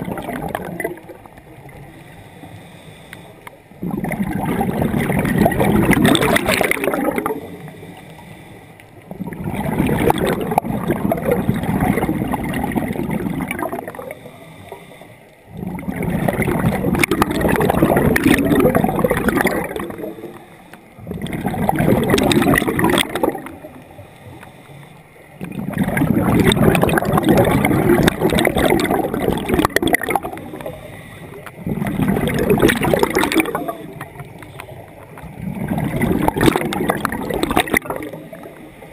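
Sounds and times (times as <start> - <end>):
exhaled bubbles bubbling: 0.0 - 2.3, 3.7 - 8.2, 8.9 - 24.4, 25.2 - 38.9
scuba regulator breathing: 1.8 - 3.8, 7.4 - 9.1, 13.7 - 16.1, 19.4 - 21.3, 23.0 - 25.5, 29.3 - 36.4.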